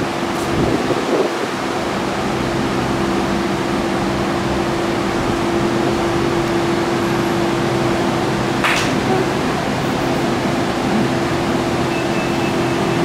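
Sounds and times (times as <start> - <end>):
electric train hum: 0.0 - 13.0.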